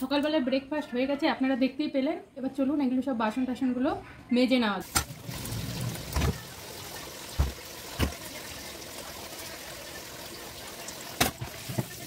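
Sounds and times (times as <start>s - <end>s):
tap water running into sink: 4.8s - 12.0s.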